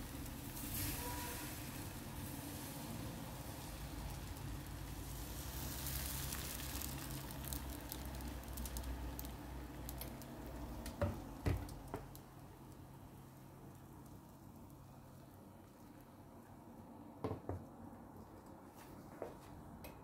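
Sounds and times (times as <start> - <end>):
batter sizzling in a frying pan: 0.0 - 16.0.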